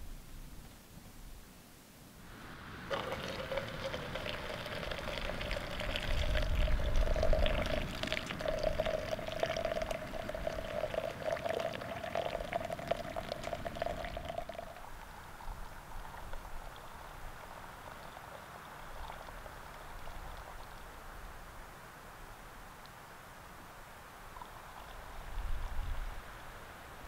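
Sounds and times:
hot liquid trickling into mug: 2.9s - 20.6s.

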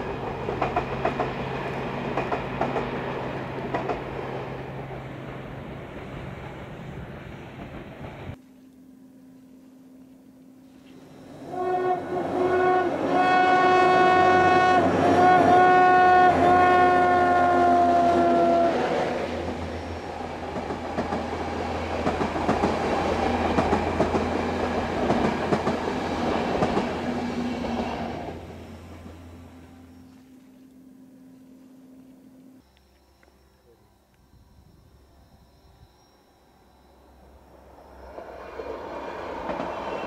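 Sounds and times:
train wheels clicking over rails: 0.0s - 8.4s, 19.0s - 29.2s, 38.1s - 40.0s
train horn blast: 11.4s - 19.1s.

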